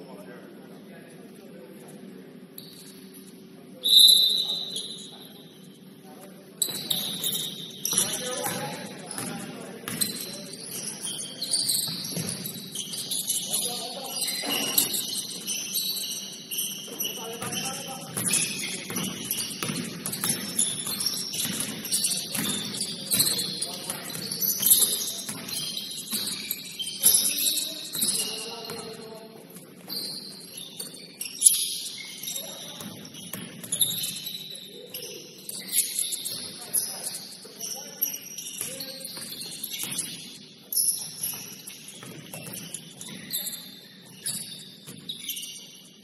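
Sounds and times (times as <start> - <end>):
sneakers squeaking on court: 1.8 - 46.0
players' voices: 3.3 - 30.8.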